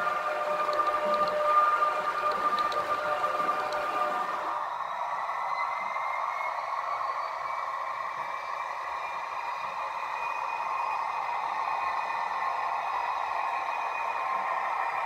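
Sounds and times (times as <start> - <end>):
model train wheels rolling on track: 0.0 - 4.5
faint motor whine: 0.0 - 5.5.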